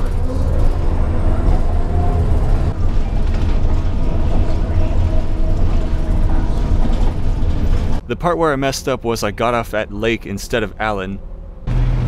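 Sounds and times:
bus engine and road rumble: 0:00.0 - 0:12.0.

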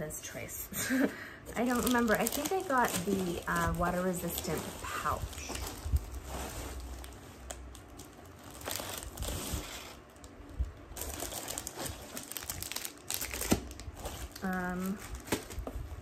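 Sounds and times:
packaging crinkling and rustling: 0:01.4 - 0:16.0.

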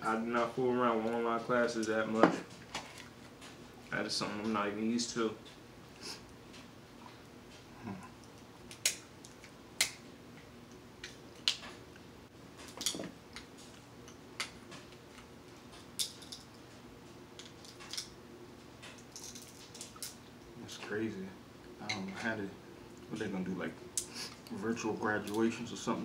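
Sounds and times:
crab shells cracking: 0:08.3 - 0:10.0.

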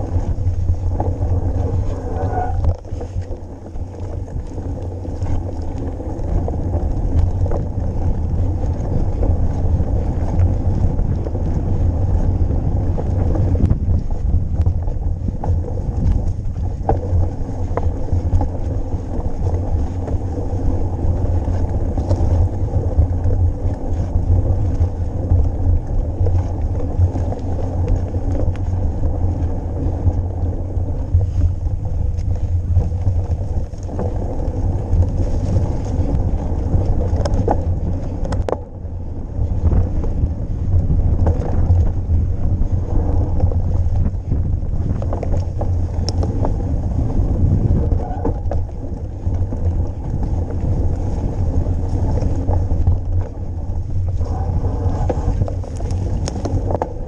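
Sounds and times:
bike clicks and rattles: 0:00.0 - 0:57.0
bike tyre noise: 0:00.0 - 0:57.0
wind buffeting microphone: 0:00.0 - 0:57.0.

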